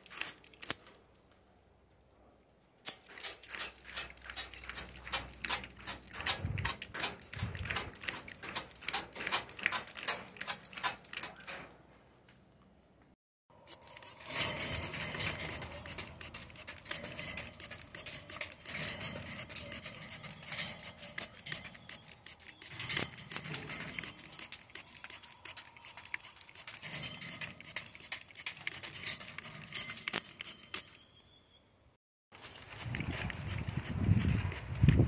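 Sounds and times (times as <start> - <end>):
water spray pattering on wire cage: 0.0 - 1.0, 2.9 - 11.7, 13.7 - 30.1.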